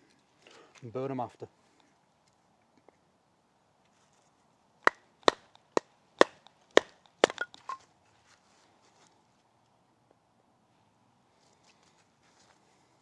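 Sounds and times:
sharp wooden strikes: 4.8s - 7.8s.

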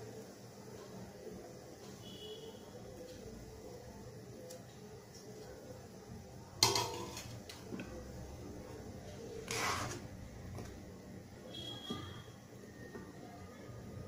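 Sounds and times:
metal utensil clanking on pot: 6.6s - 7.4s
scraping noise: 9.4s - 10.1s.

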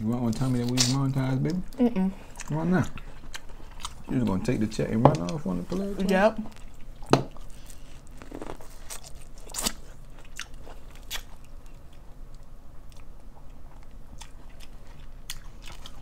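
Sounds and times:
chewing and biting food: 2.3s - 5.4s, 6.5s - 16.0s.

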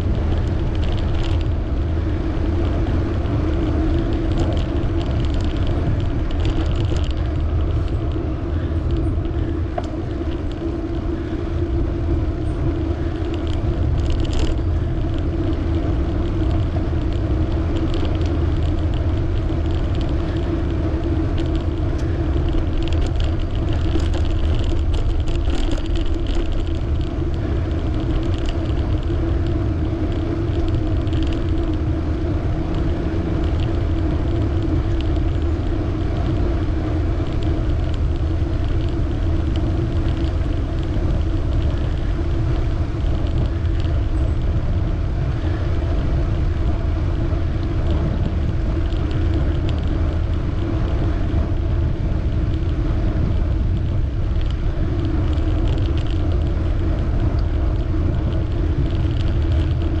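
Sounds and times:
bicycle tyre noise: 0.0s - 60.0s
wind on microphone: 0.0s - 60.0s
faint light ticks: 8.8s - 11.2s, 13.2s - 44.5s, 47.6s - 51.7s, 52.3s - 60.0s.

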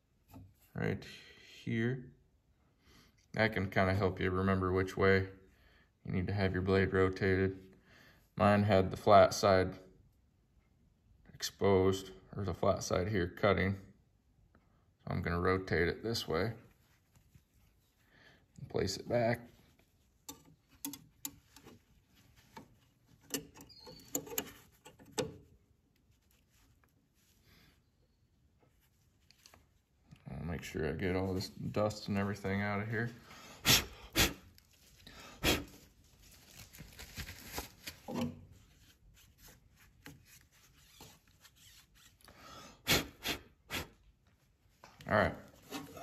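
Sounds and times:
metal clicks and taps: 20.2s - 21.8s, 22.6s - 25.4s.

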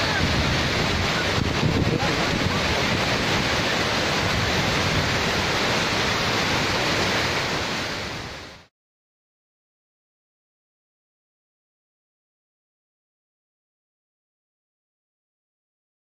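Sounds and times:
waterfall rushing: 0.0s - 8.7s.

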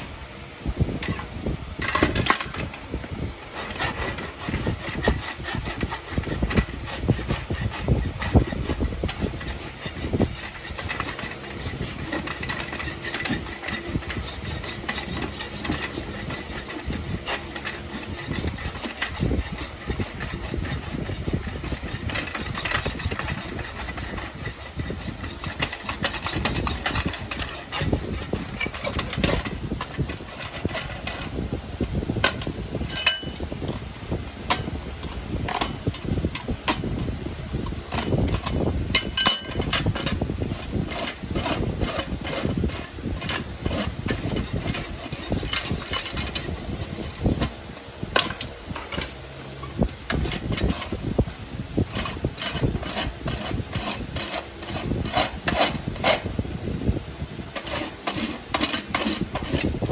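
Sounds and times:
hoof rasp scraping hoof: 1.0s - 59.9s.

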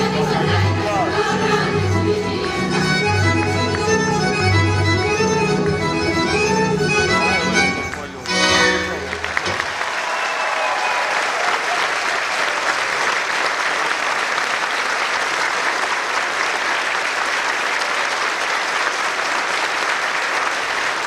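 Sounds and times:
audience applauding: 7.8s - 21.0s.

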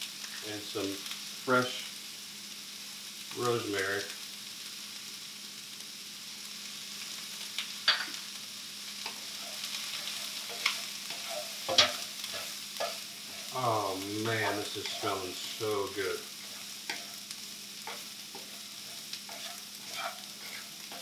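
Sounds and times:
vegetables sizzling in a skillet: 0.0s - 21.0s
wooden spoon stirring a pan: 9.0s - 21.0s.

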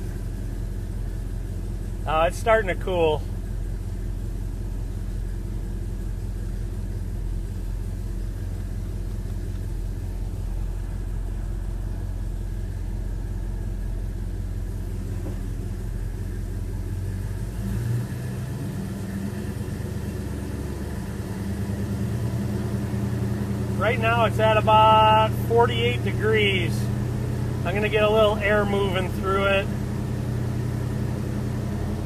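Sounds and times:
car engine idling: 0.0s - 32.0s
air conditioning running: 22.4s - 32.0s.

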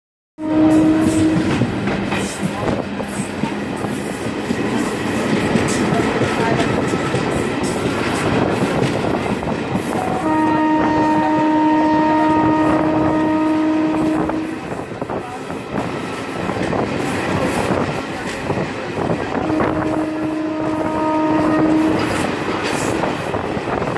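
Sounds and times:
locomotive horn: 0.4s - 1.7s, 9.9s - 14.8s, 19.3s - 22.4s
train rumbling on rails: 0.4s - 23.9s.

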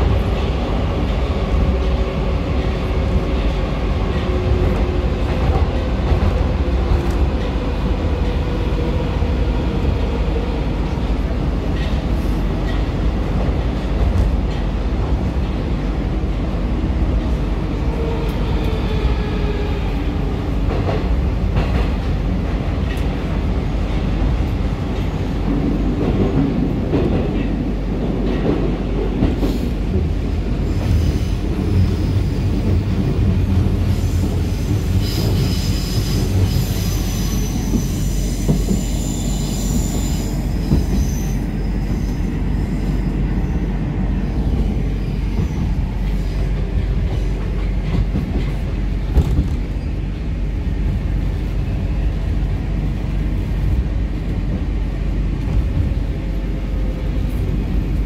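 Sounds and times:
train wheels rumbling on rails: 0.0s - 58.0s
high brake squeal: 34.9s - 43.6s.

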